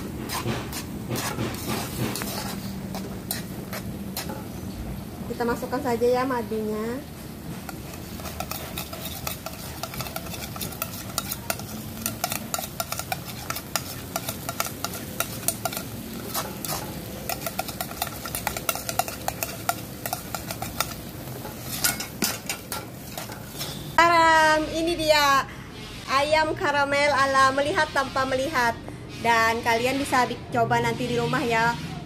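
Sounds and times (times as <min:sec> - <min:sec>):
utensil scraping a wok: 0:00.0 - 0:24.0, 0:27.2 - 0:32.0
steady sizzle: 0:00.0 - 0:24.2.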